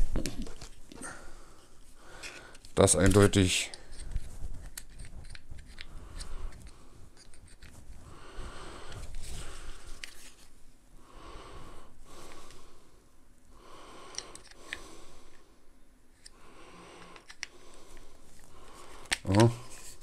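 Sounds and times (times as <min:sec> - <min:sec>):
wheezy breathing through nose: 0:08.0 - 0:10.0.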